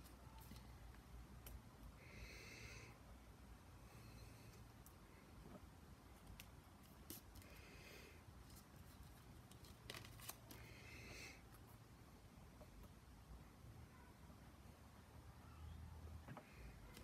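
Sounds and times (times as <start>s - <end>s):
paper rustling: 8.5s - 10.6s.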